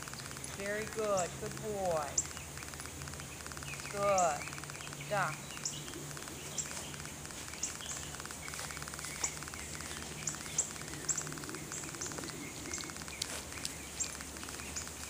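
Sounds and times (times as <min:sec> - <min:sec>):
high falling bird chirps: 0:00.0 - 0:15.0
low steady hum: 0:00.0 - 0:15.0
pulsing insect trill: 0:00.0 - 0:15.0.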